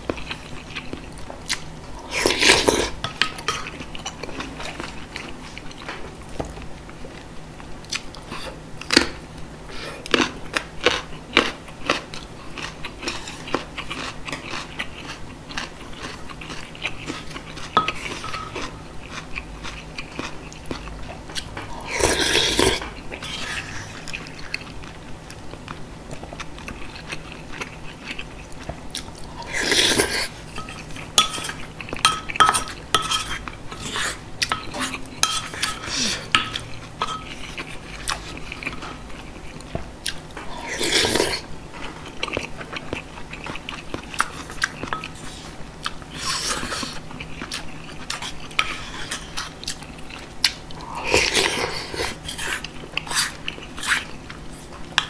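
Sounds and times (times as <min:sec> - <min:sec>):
wet chewing: 0:10.0 - 0:32.0
wooden spoon scraping ceramic pot: 0:32.4 - 0:35.8.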